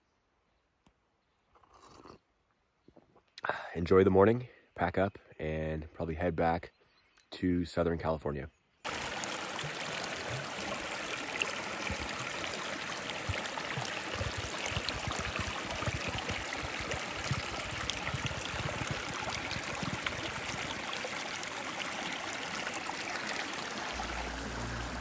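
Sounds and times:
bottle gurgling underwater: 0:08.9 - 0:21.4
water rushing over rocks: 0:08.9 - 0:25.0.

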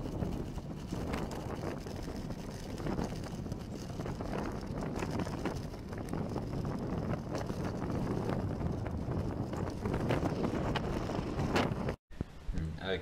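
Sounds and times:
wind buffeting microphone: 0:00.0 - 0:12.0
road noise: 0:01.0 - 0:12.0.

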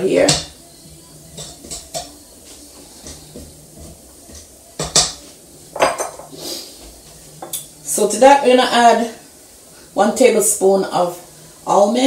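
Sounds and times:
spatulas scraping a metal bowl: 0:01.3 - 0:05.4.

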